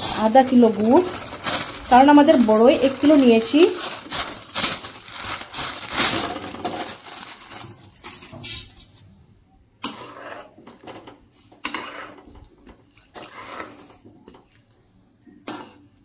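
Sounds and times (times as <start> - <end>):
plastic bag rustling: 0.0 - 9.0
metal spatula scraping a pan: 9.8 - 12.4, 13.1 - 14.0, 15.4 - 15.9.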